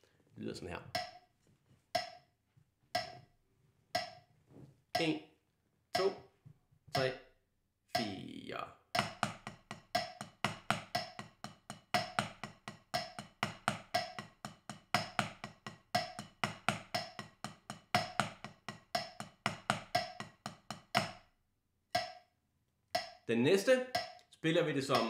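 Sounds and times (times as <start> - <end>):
drumsticks striking practice pad: 1.0 - 1.2, 2.0 - 2.2, 3.0 - 3.2, 4.0 - 4.2, 6.0 - 6.2, 8.0 - 8.2, 9.0 - 21.3, 22.0 - 22.2, 23.0 - 23.2, 24.0 - 24.2.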